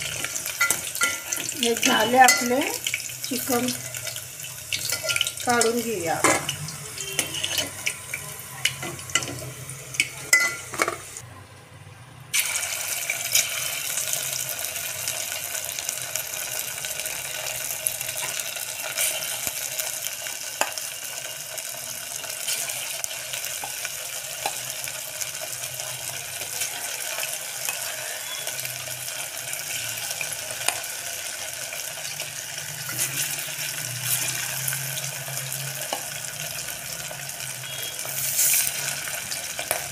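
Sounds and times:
chicken deep-frying in oil: 0.0 - 11.2, 12.3 - 39.9
metal spoon scraping pot: 3.7 - 11.2.

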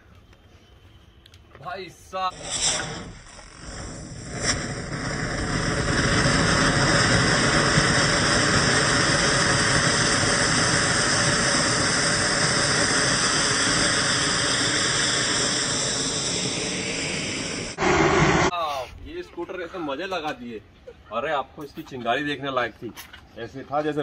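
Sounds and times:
firework fountain hissing: 2.1 - 18.5.

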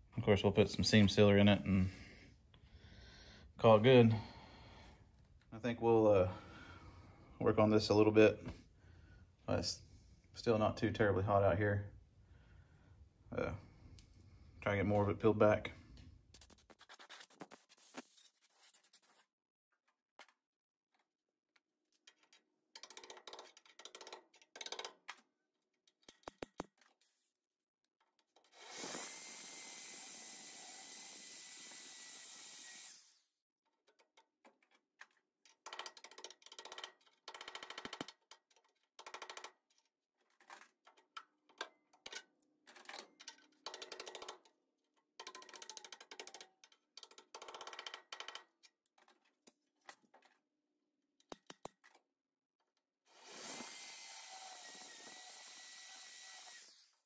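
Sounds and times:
power tool running: 28.6 - 33.2, 53.1 - 57.0.

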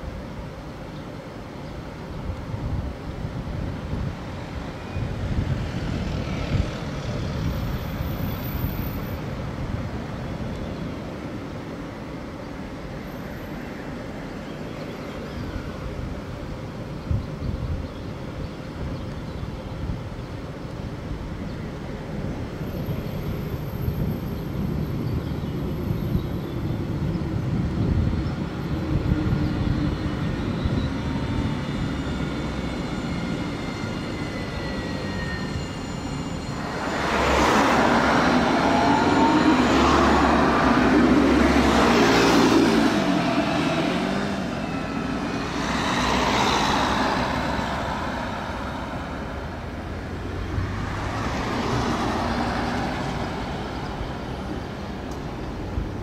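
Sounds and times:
tram rushing past: 0.0 - 17.4, 19.8 - 56.0
tram motor whine: 26.8 - 55.9.

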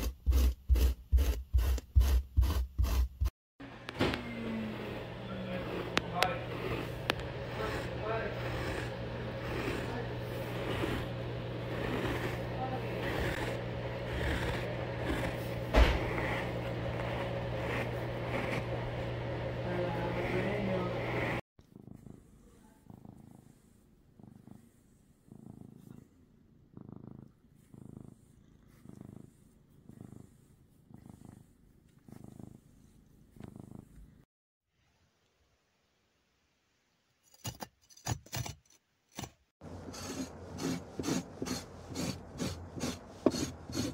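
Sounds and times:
pet hair remover scraping carpet: 0.0 - 25.2, 39.6 - 43.9
thump: 15.7 - 16.1.

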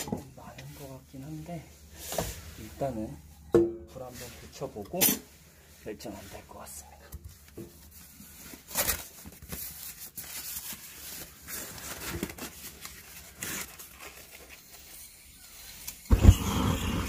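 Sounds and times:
kindling crinkling and tearing: 7.3 - 16.1.

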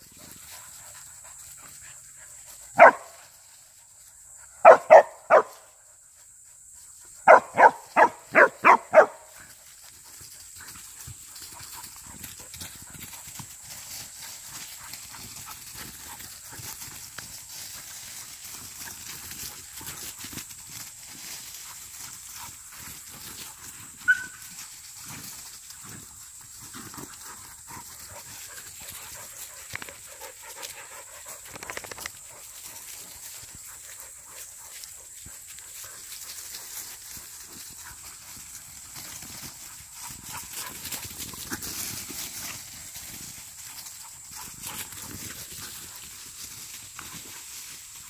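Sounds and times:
dog yelp: 2.8 - 3.1, 4.6 - 5.5, 7.3 - 9.2, 24.0 - 24.4
dogs scuffling in dry leaves: 7.9 - 48.0.

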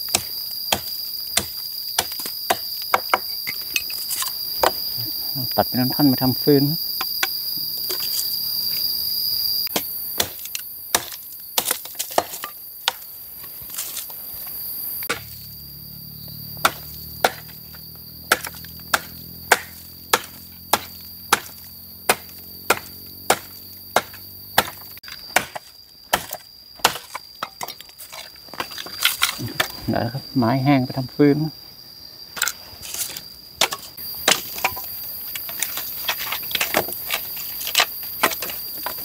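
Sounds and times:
axe chopping wood: 0.0 - 4.9, 9.7 - 13.1, 15.0 - 15.4, 16.4 - 29.8, 32.4 - 39.0
insects calling: 0.0 - 39.0.

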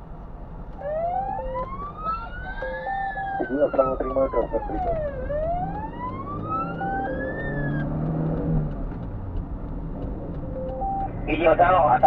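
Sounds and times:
truck engine hum: 0.0 - 12.0
fire engine siren wailing: 0.8 - 8.6
two-note beep: 1.2 - 3.6, 10.5 - 11.2.

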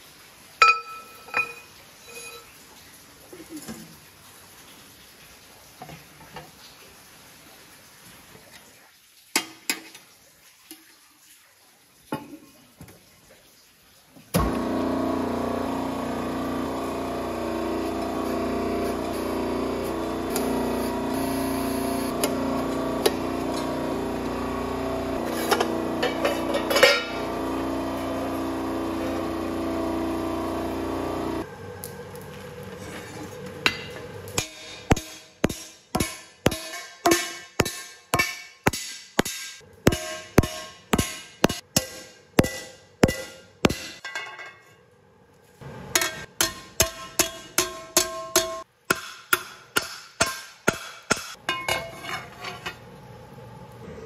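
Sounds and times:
press motor and pump hum: 14.3 - 35.0
metal scraping: 17.7 - 27.9, 51.6 - 52.8
hammer striking steel skillet: 33.7 - 44.4, 45.9 - 52.0.

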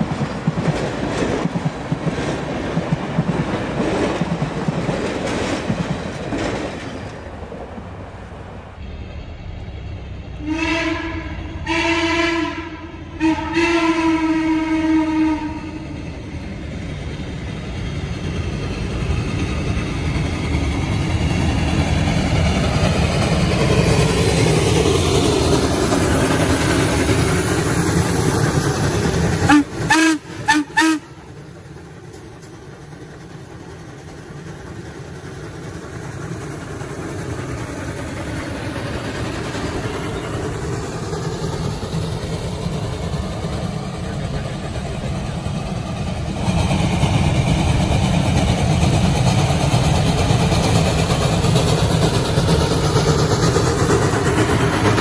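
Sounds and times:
moving train rumble: 0.0 - 55.0
steam whistle: 10.4 - 15.8, 29.5 - 31.2.

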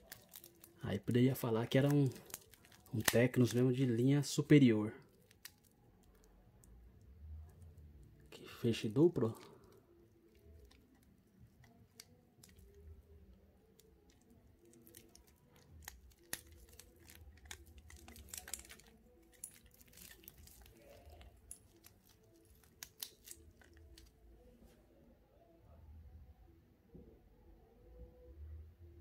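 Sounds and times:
plastic film crinkling: 0.0 - 4.4, 5.0 - 6.3, 8.1 - 24.4
metal bracelet clicks: 14.1 - 24.1.

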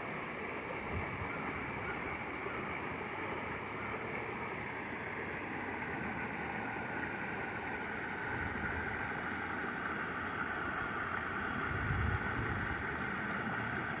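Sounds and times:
water splashing over weir: 0.0 - 14.0
wind rumble on microphone: 0.8 - 1.9, 11.6 - 12.9.

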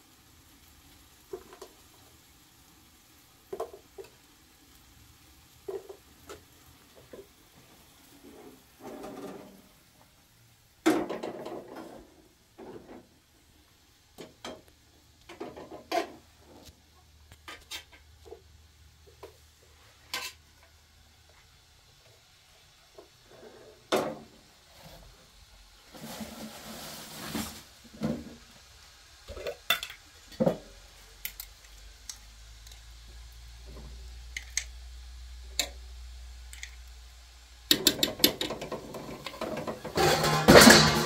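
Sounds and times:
pot and lid clanking: 10.8 - 13.0, 29.3 - 30.7, 37.7 - 41.0.

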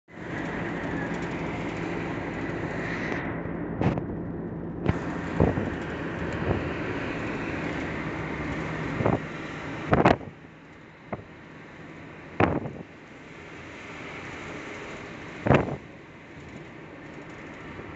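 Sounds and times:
engine hum and road rumble: 0.0 - 17.9.

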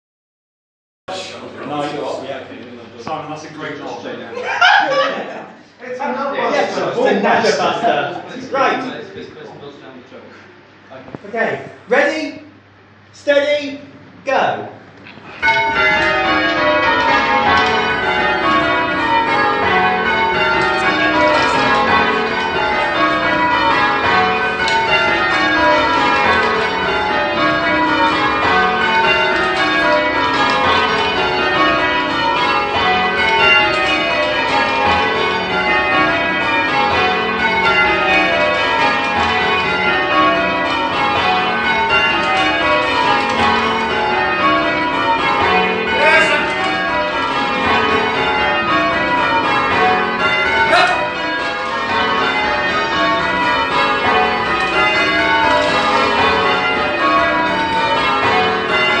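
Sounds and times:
church bells change ringing: 15.3 - 59.0.

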